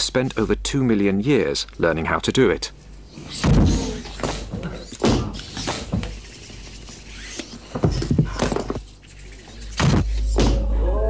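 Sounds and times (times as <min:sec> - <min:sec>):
irregular knocks and clatters: 0:07.7 - 0:09.0.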